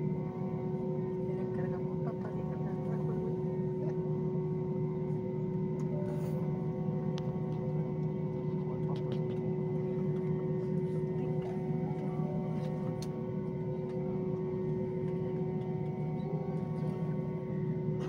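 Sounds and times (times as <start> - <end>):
low mechanical hum: 0.0 - 18.0.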